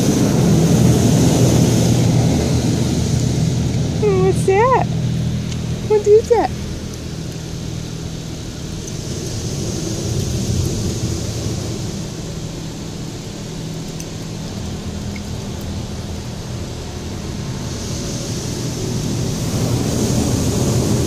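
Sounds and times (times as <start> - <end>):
muffled car wash machinery rumble: 0.0 - 21.0
water spray hissing on car: 0.0 - 21.0.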